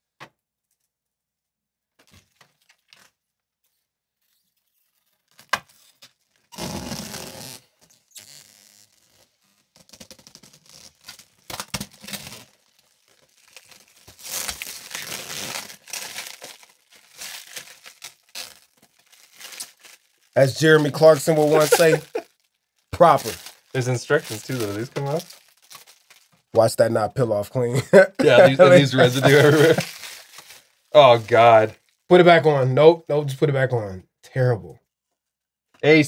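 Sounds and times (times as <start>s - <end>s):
plastic film crumpling in hand: 4.2s - 26.5s, 28.8s - 32.1s
plastic film peeling off glass: 4.2s - 26.5s, 29.0s - 32.1s.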